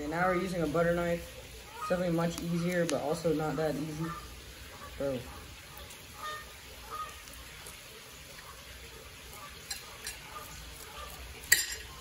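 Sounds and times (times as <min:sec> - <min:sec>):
knife clinking on plate: 0:11.5 - 0:11.9.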